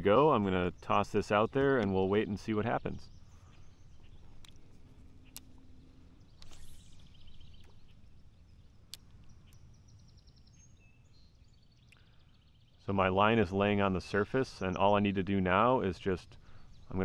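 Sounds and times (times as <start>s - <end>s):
faint high chirps: 2.7s - 13.0s
fishing reel clicks: 6.3s - 8.2s
fishing rod swish: 6.4s - 8.0s.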